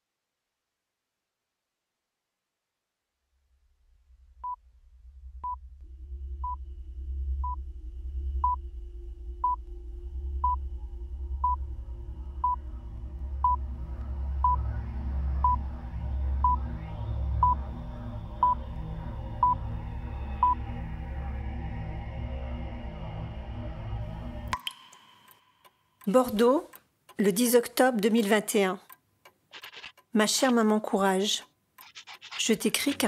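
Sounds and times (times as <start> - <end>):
low pulsing drone: 3.8 - 24.6.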